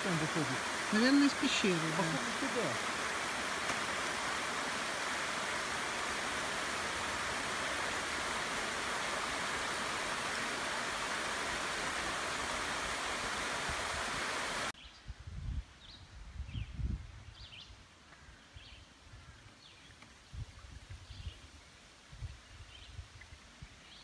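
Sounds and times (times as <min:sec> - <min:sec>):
waterfall splashing: 0:00.0 - 0:14.8.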